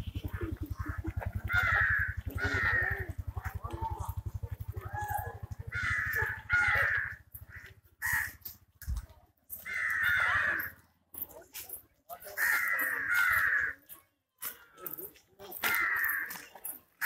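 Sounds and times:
crows cawing: 0:00.2 - 0:04.2, 0:05.4 - 0:08.6, 0:09.5 - 0:10.8, 0:12.3 - 0:13.9, 0:15.5 - 0:16.5.

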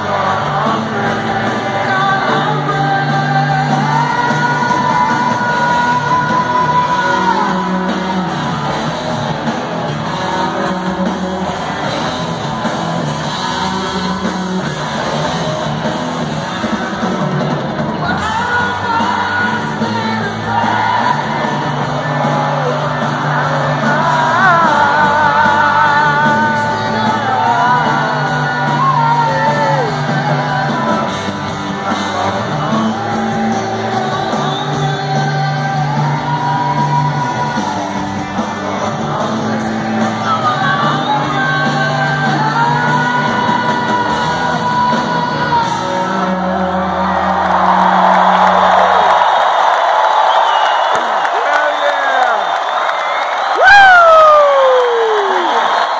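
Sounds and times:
man singing: 0:00.0 - 0:08.6, 0:13.2 - 0:14.8, 0:18.0 - 0:37.8, 0:38.4 - 0:47.6
live rock band playing: 0:00.0 - 0:55.9.

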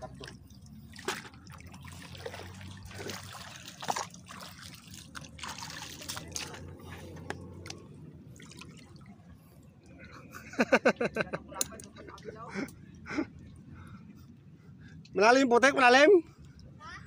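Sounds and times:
small splashes: 0:00.0 - 0:09.5
shallow water trickling and sloshing: 0:00.0 - 0:10.7, 0:15.9 - 0:17.0.

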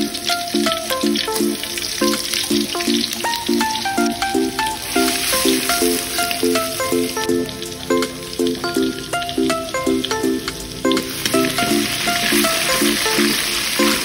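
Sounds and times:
background music: 0:00.0 - 0:14.0
garlic sizzling in hot oil: 0:00.0 - 0:14.0.

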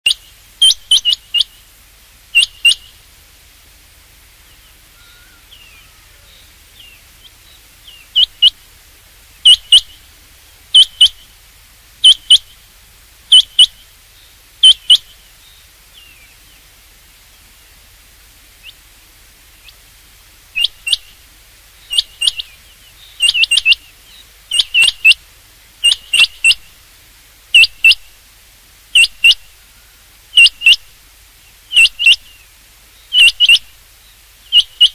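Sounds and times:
quail calling: 0:00.0 - 0:01.6, 0:02.3 - 0:03.0, 0:04.6 - 0:08.7, 0:09.4 - 0:10.1, 0:10.7 - 0:11.3, 0:12.0 - 0:12.6, 0:13.3 - 0:13.8, 0:14.6 - 0:15.2, 0:20.5 - 0:21.2, 0:21.9 - 0:25.2, 0:25.8 - 0:26.8, 0:27.5 - 0:28.1, 0:28.9 - 0:31.0, 0:31.7 - 0:32.4, 0:33.1 - 0:33.8, 0:34.5 - 0:34.9.

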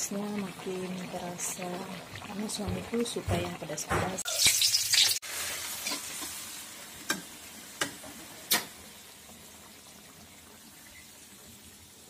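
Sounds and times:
food sizzling in a wok: 0:03.8 - 0:12.0.

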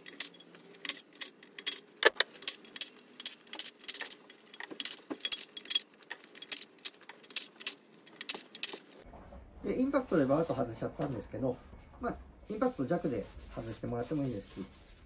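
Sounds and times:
metallic clicks and rattles: 0:00.0 - 0:08.9.

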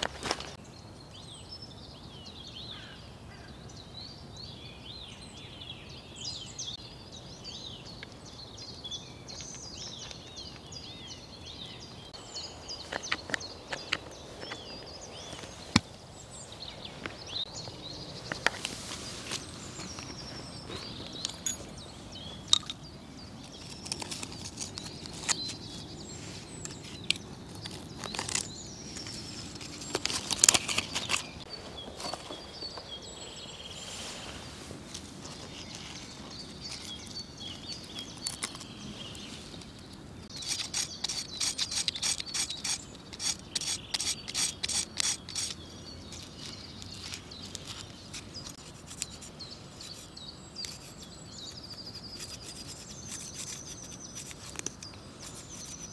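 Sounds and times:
knife scraping wood: 0:40.3 - 0:55.9.

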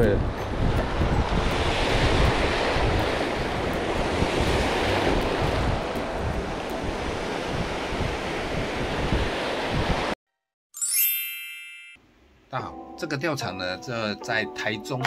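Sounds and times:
wind rumbling on microphone: 0:00.0 - 0:10.2.

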